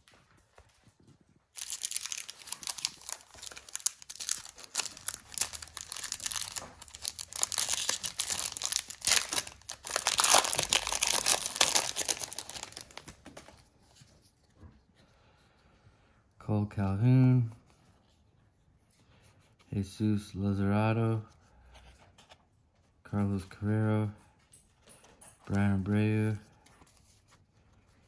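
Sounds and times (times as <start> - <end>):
foil wrapper crinkling and tearing: 1.6 - 13.2.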